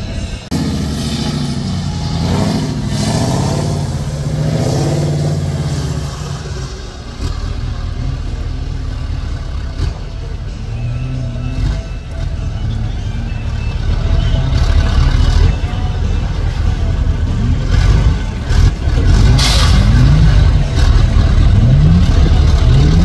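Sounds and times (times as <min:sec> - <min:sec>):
truck diesel engine revving: 0:00.0 - 0:23.0.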